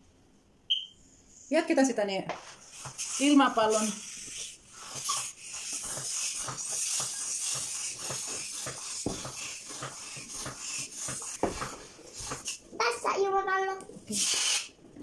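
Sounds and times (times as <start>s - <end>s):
balloon pump hissing air: 2.6s - 12.8s, 14.0s - 14.9s.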